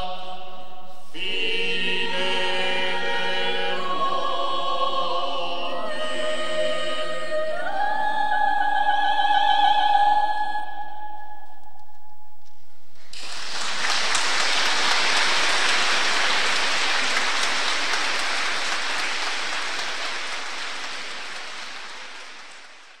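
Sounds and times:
audience applauding: 13.0 - 23.0.

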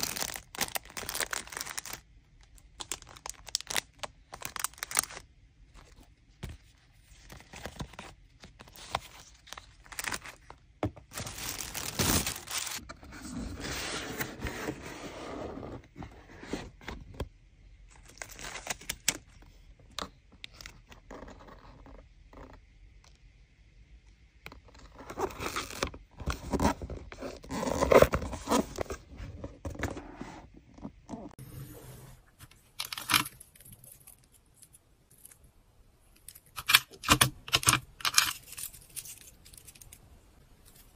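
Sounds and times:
plastic bags crinkling: 0.0 - 5.3, 8.6 - 12.8.

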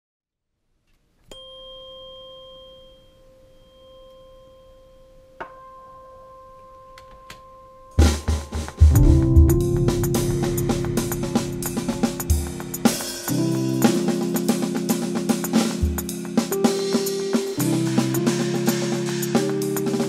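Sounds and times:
tuning fork ringing: 1.3 - 8.8
drum kit with cymbals: 8.0 - 20.0.

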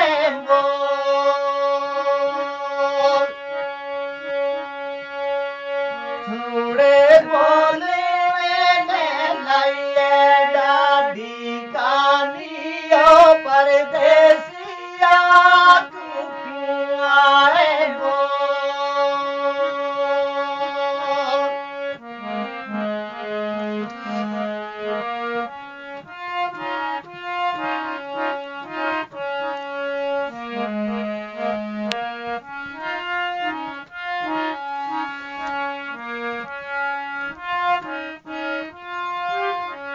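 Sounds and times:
person singing: 0.0 - 3.7, 6.0 - 25.0
harmonium melody: 0.0 - 39.9.

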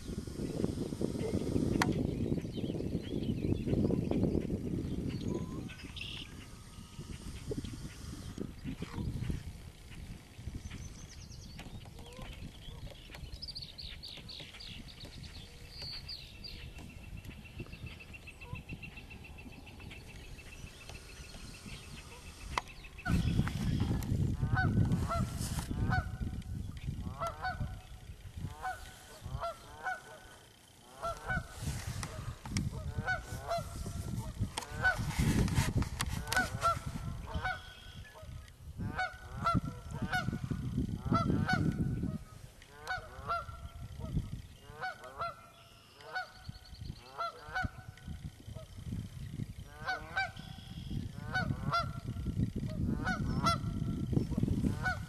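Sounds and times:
goose honking: 27.1 - 27.7, 28.5 - 33.8, 42.7 - 43.6, 46.0 - 46.4, 47.1 - 47.9, 49.7 - 52.0, 54.7 - 55.0.

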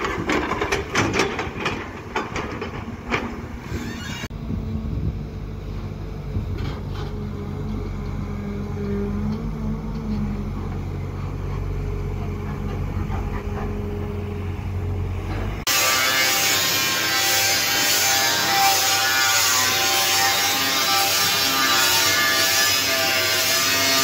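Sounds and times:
excavator diesel engine rumbling: 0.0 - 15.7
angle grinder cutting sheet steel: 3.6 - 4.3, 15.6 - 24.0.

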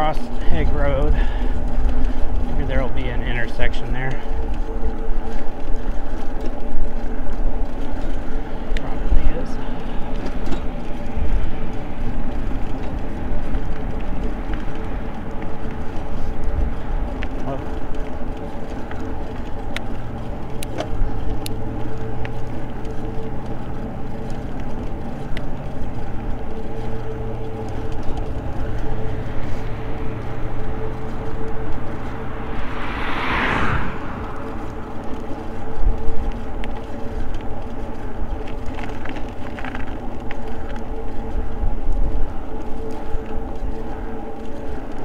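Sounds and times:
e-bike motor hum: 0.0 - 45.0
wind rumble on microphone: 0.0 - 45.0
car passing with whoosh: 27.0 - 36.5.

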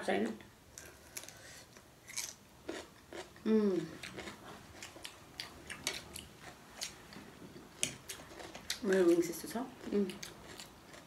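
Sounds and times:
cucumber crunching: 2.0 - 3.3.

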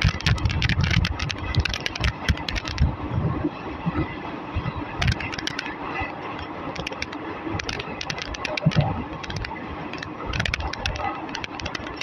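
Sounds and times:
clicks and rattles: 0.0 - 2.9, 5.0 - 5.8, 6.4 - 12.0
train wheels rumbling on rails: 0.0 - 12.0.

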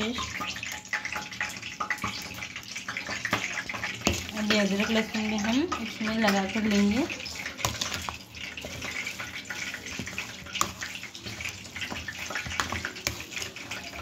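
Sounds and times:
wet squelching of mince: 3.2 - 14.0.

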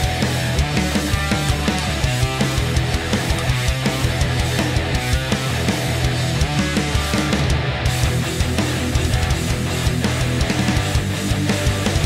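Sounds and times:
heavy rock music: 0.0 - 12.0.

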